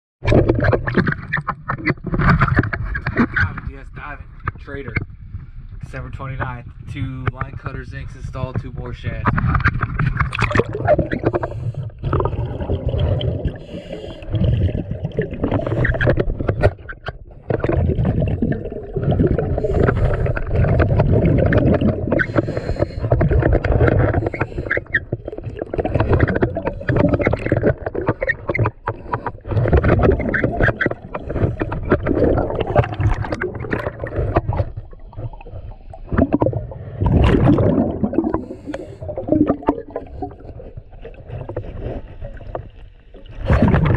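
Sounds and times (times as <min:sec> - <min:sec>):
gurgling exhaled bubbles: 0:00.2 - 0:07.0, 0:07.6 - 0:43.9
diver breathing through regulator: 0:11.2 - 0:12.5, 0:13.1 - 0:16.2, 0:19.3 - 0:21.1, 0:22.0 - 0:25.2, 0:31.1 - 0:33.0, 0:37.6 - 0:40.6.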